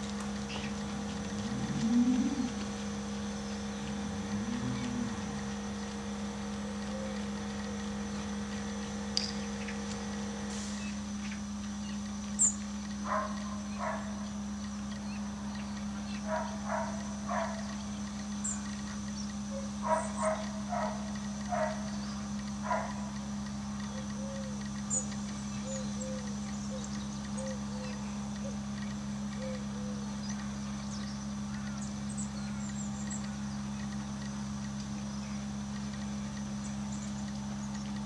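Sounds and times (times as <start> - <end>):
low machine hum: 0.0 - 38.0
short animal calls: 3.8 - 5.7.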